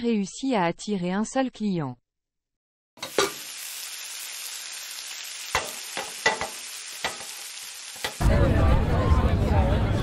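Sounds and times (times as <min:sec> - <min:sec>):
food sizzling in pan: 0:03.0 - 0:08.2.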